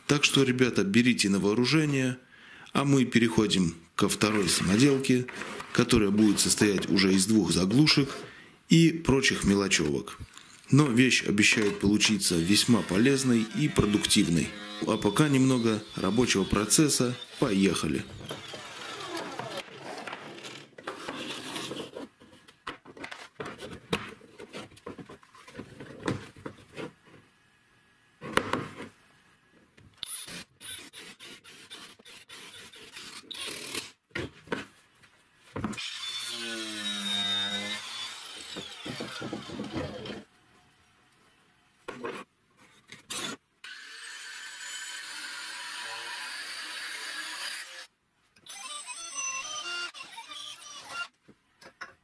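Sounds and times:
angle grinder cutting metal: 11.6 - 19.6, 35.8 - 40.3, 43.1 - 47.9
power tool running: 12.4 - 19.6, 35.8 - 40.2.

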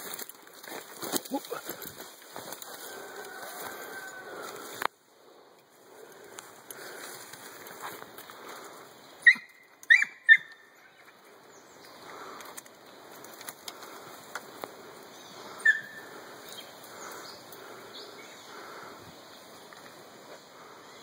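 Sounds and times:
brush rustling: 0.0 - 5.0, 5.7 - 9.0
dogs yipping: 9.2 - 11.1, 15.6 - 16.1.

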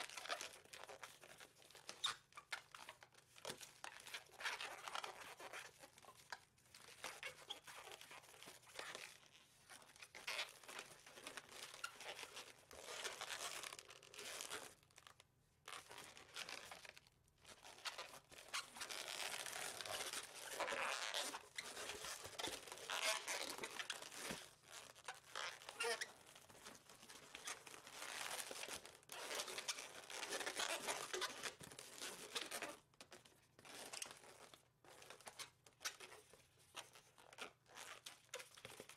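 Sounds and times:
balloon rubbing and squeaking: 17.7 - 26.4.

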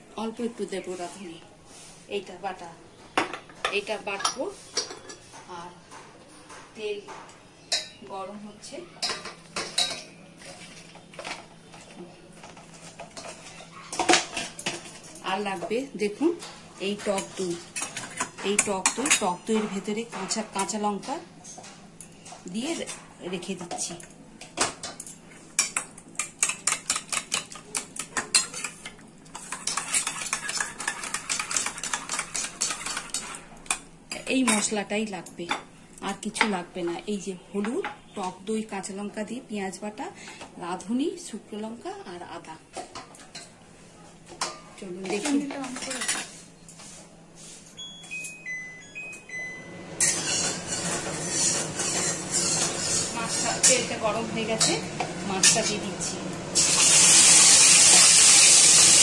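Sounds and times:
metal spatula scraping pan: 29.4 - 33.4, 50.0 - 55.8
hot oil hissing: 56.5 - 59.0.

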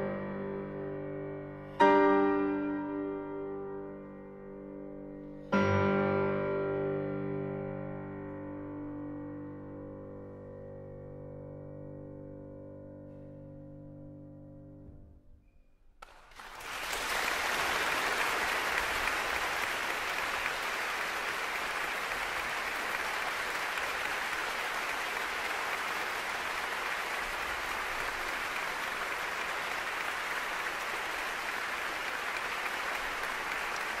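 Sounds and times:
audience applauding: 16.0 - 34.0.

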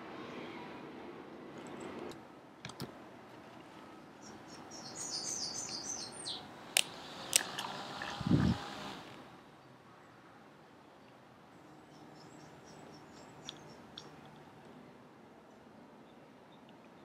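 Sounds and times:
bird chirping: 4.2 - 6.5, 11.0 - 14.4
sharp clicks: 6.7 - 7.7.

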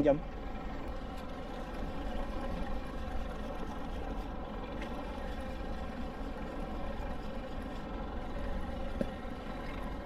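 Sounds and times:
boat engine humming: 0.0 - 10.0.

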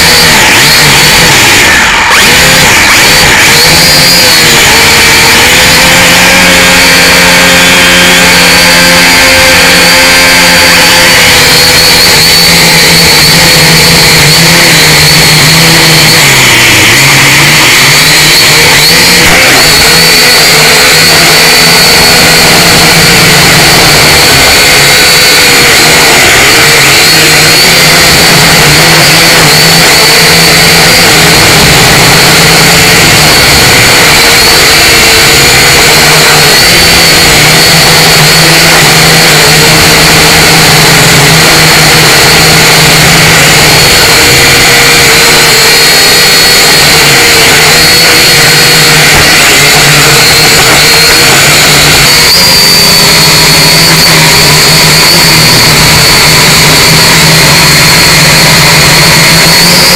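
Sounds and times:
quadcopter propellers whining: 0.0 - 59.9.

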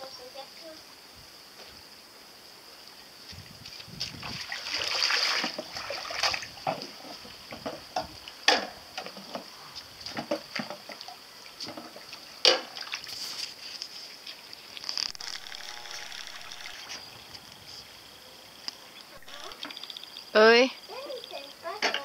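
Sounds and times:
steady high hiss: 0.0 - 22.0
water splashing in a basin: 3.6 - 13.3.

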